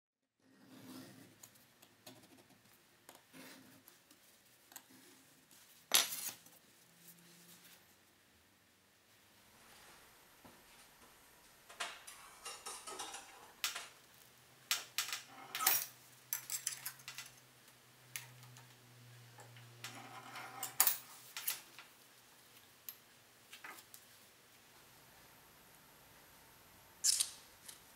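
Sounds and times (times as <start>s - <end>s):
sheet steel clinking and clattering: 11.8s - 14.0s.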